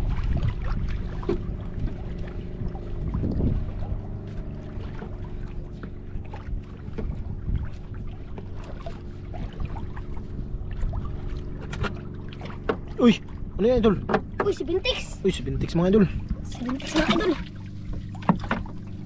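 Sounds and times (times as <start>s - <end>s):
boat motor running: 0.0s - 19.0s
light clicks and knocks: 14.0s - 14.6s.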